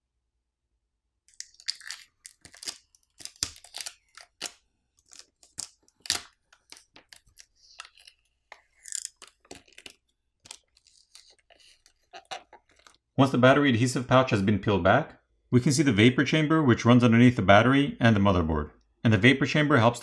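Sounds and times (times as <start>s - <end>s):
plastic film peeling and crinkling: 1.4s - 13.0s.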